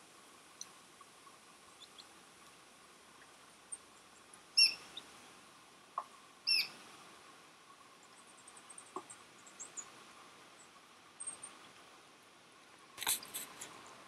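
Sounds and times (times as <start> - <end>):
duckling peeping: 1.8 - 2.1, 4.6 - 5.0, 6.4 - 6.8.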